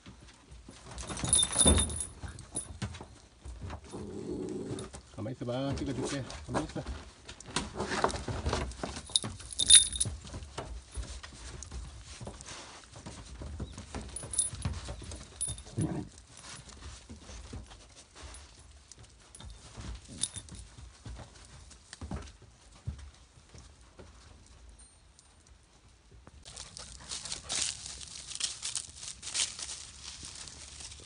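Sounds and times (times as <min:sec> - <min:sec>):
scuffling and rustling: 0:00.0 - 0:24.7, 0:26.4 - 0:31.0
metallic clinks: 0:00.9 - 0:03.0, 0:08.8 - 0:11.1, 0:13.6 - 0:17.4, 0:18.2 - 0:21.0.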